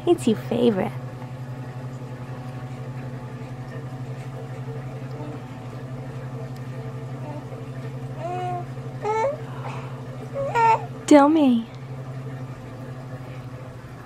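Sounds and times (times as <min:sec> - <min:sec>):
steady low hum: 0:00.0 - 0:14.0
baby vocal sound: 0:08.2 - 0:09.5, 0:10.4 - 0:10.9.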